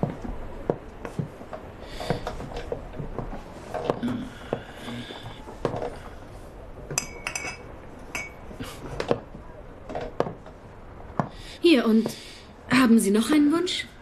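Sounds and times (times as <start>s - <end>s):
film soundtrack hiss: 0.0s - 14.0s
glass bottles clinking: 6.9s - 8.5s.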